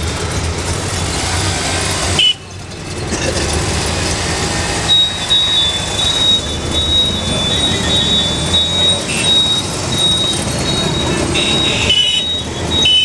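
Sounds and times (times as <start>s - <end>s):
auto-rickshaw engine running: 0.0s - 13.0s
road and traffic noise: 0.0s - 13.0s
high beeping tone: 4.7s - 13.0s.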